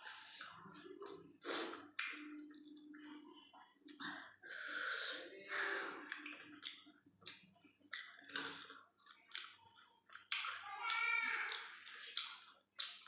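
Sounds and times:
lip smacks: 1.1s - 2.8s, 6.1s - 13.0s
mouth clicks: 6.0s - 13.0s
wet chewing: 6.0s - 13.0s.

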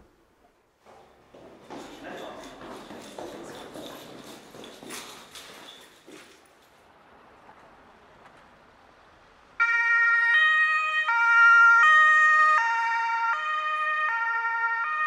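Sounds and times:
ambulance two-tone siren: 9.6s - 15.0s.

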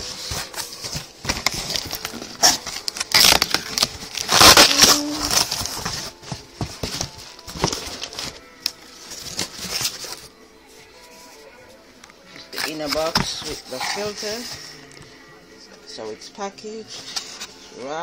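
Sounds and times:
packaging clicks and knocks: 0.0s - 10.1s
plastic and cardboard crinkling: 0.0s - 10.3s, 12.3s - 15.0s.

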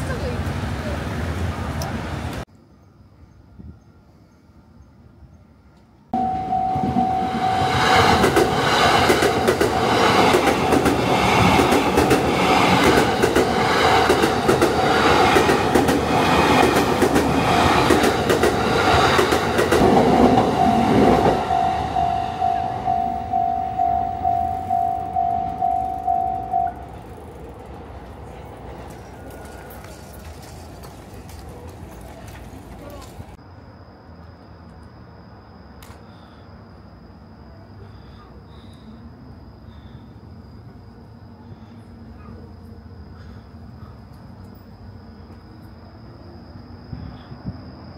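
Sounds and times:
ringing tone: 6.2s - 8.3s, 20.3s - 26.9s
train wheels clattering over rails: 7.6s - 21.7s.

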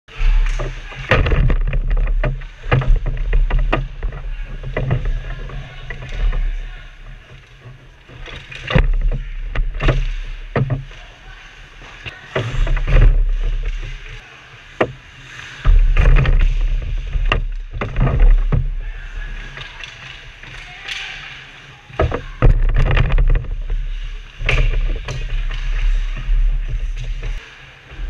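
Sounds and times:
low rumble of boards shaking: 0.3s - 10.9s, 12.4s - 14.2s, 15.6s - 19.2s, 22.0s - 27.4s
sticks and puck hitting boards: 0.3s - 11.1s, 14.8s - 27.4s
skates scraping ice: 1.8s - 22.6s, 23.2s - 28.0s.

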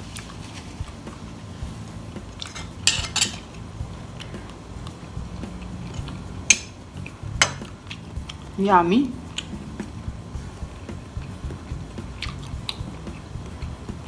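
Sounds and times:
metal fork clinking on crockery: 2.4s - 3.5s.

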